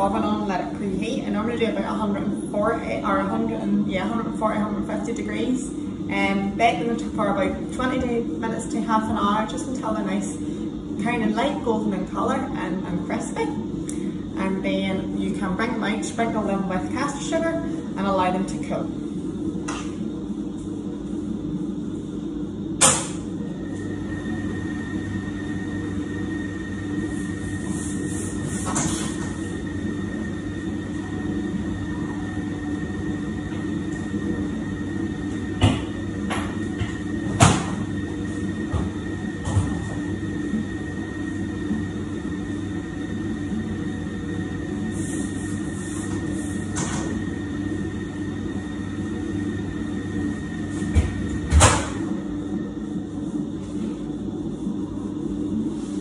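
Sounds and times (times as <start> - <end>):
stand mixer running: 22.4 - 53.6.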